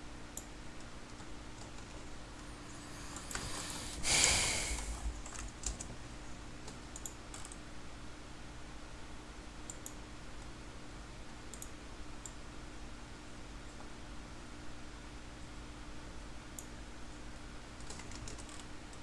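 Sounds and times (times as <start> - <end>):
faint steady hum: 0.0 - 19.0
computer mouse clicks: 0.4 - 2.1, 6.7 - 7.6, 9.7 - 10.0, 11.5 - 12.4.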